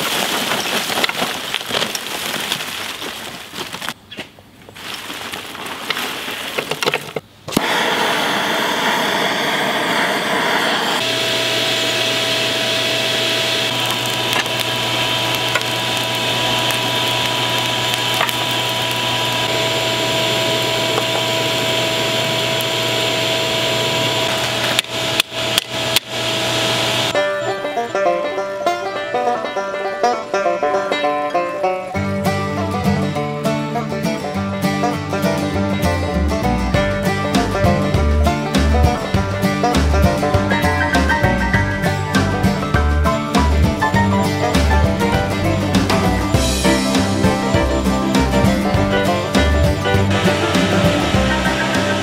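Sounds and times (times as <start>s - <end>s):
charcoal pouring into metal pan: 0.0s - 3.9s, 13.7s - 23.0s
electric air blower humming: 7.5s - 27.2s, 44.0s - 52.0s.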